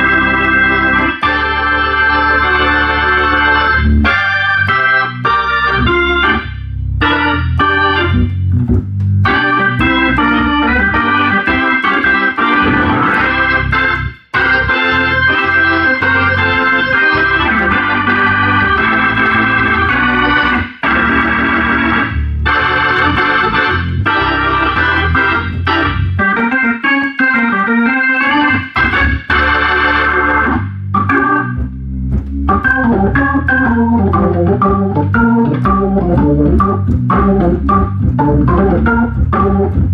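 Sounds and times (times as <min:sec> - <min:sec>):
organ playing chords: 0:00.0 - 0:39.9.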